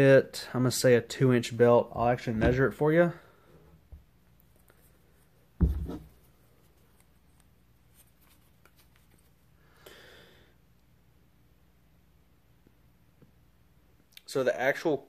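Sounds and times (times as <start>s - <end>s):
knock: 5.6s - 6.0s.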